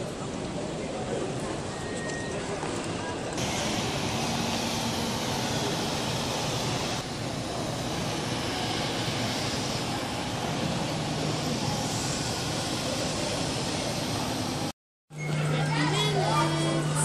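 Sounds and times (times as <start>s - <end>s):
airport terminal ambience: 0.0s - 17.0s.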